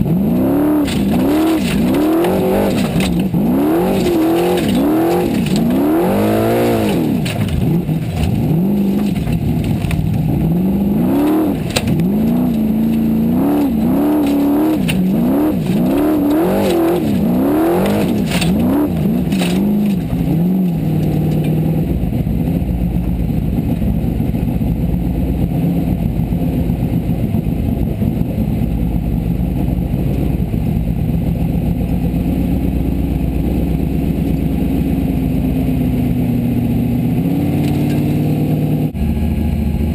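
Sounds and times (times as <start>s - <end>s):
buggy engine revving: 0.0s - 39.9s
car knocking and clattering: 0.7s - 24.6s, 37.6s - 38.1s.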